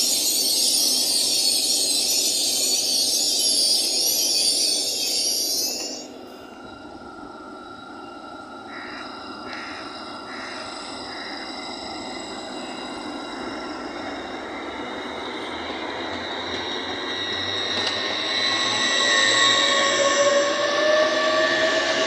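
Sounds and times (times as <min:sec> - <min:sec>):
electric train whine: 0:00.0 - 0:22.0
low rumble of train: 0:00.0 - 0:22.0.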